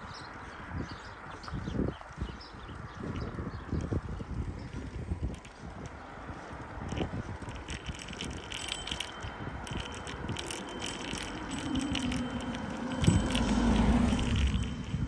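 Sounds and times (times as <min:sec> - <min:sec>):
bicycle rattling and clicking: 0:00.0 - 0:15.0
low hum: 0:07.6 - 0:15.0.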